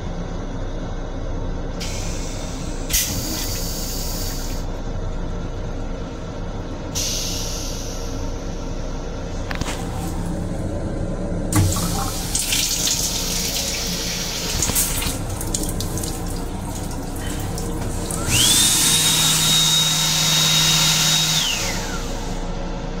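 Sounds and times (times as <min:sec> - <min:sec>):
water running from faucet: 0:11.6 - 0:19.8
hand dryer blower whining: 0:17.7 - 0:22.4.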